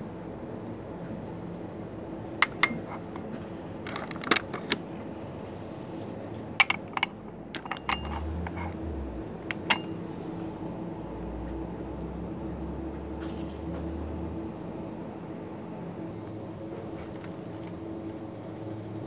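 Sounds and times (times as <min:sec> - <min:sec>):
glasses and saucers clinking: 0:02.4 - 0:03.1, 0:06.6 - 0:08.5, 0:09.5 - 0:10.0.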